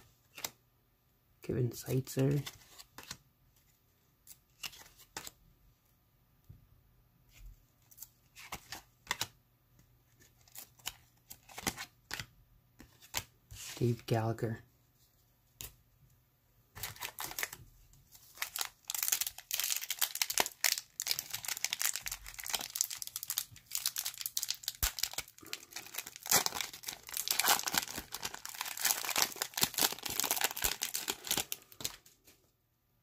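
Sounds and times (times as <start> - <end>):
plastic wrapper crinkling and tearing: 16.8 - 32.1.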